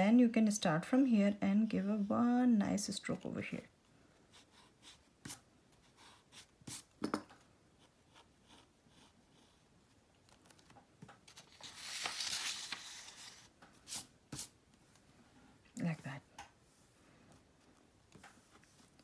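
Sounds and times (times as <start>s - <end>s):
pencil scratching on paper: 4.3s - 6.9s, 7.8s - 9.7s
paper rustling and sliding: 10.3s - 14.5s.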